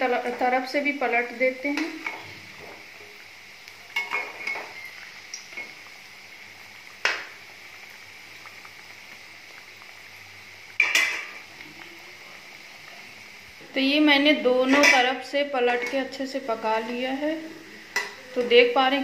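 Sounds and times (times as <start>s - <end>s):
deep frying sizzle: 0.0s - 19.0s
metal spoon clinking against pan: 14.7s - 15.1s, 15.8s - 16.1s.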